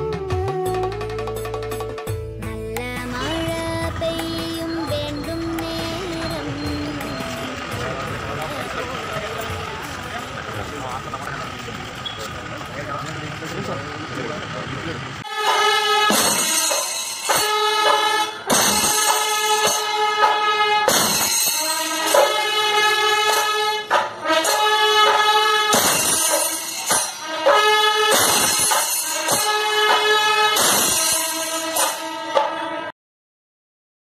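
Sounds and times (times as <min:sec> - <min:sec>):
drums beaten with sticks: 0:00.0 - 0:11.8, 0:15.2 - 0:32.7
horns blowing long notes: 0:03.2 - 0:12.3, 0:15.2 - 0:32.9
cymbals clashing: 0:15.2 - 0:32.9.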